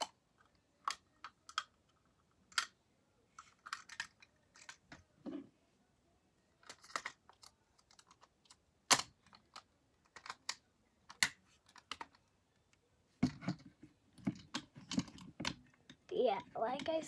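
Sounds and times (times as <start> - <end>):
clicks and taps of handled objects: 0.0 - 2.8, 6.6 - 17.0.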